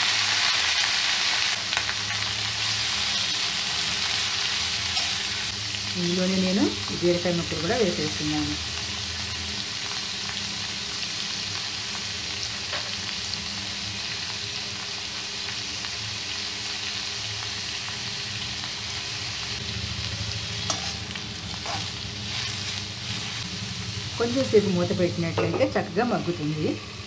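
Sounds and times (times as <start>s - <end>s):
vegetables sizzling in hot oil: 0.0s - 27.0s
spoon knocking in pan: 25.3s - 25.8s.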